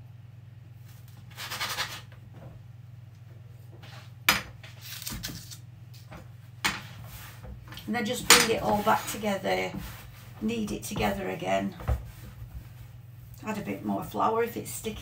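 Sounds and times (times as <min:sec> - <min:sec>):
steady low hum: 0:00.0 - 0:15.0
dough scraping rustle: 0:06.8 - 0:13.0.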